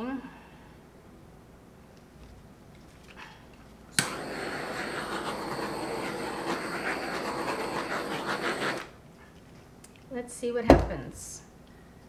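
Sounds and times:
blower switch click: 4.0 - 4.2
electric blower rushing: 4.0 - 9.0.

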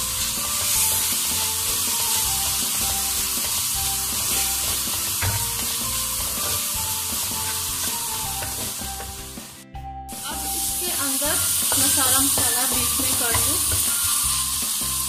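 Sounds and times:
masala sizzling in a pan: 0.0 - 15.0
spatula scraping a pan: 0.1 - 8.8.

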